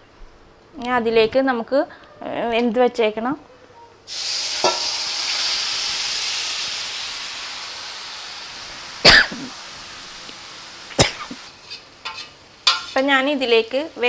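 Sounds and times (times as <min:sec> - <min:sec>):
food sizzling in a pan: 0:04.1 - 0:14.0.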